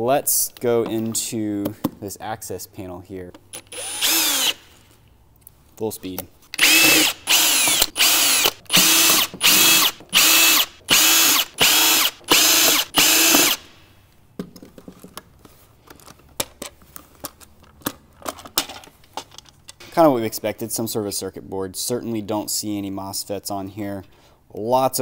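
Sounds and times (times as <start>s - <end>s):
cordless drill whining: 3.6s - 4.7s, 6.6s - 13.7s.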